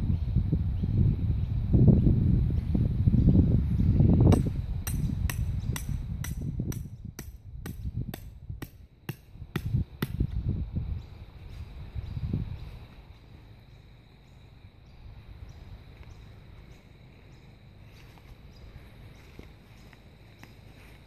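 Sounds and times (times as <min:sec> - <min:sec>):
hammer striking tent peg: 0:04.3 - 0:10.2.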